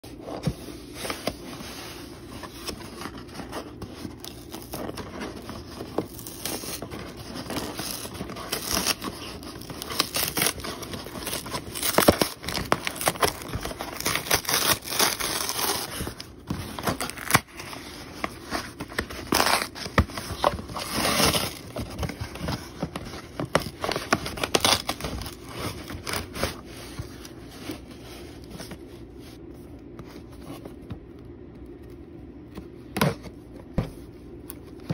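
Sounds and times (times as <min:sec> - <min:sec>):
cardboard game box handling: 0:00.1 - 0:31.1
cardboard box being torn open: 0:02.7 - 0:26.6.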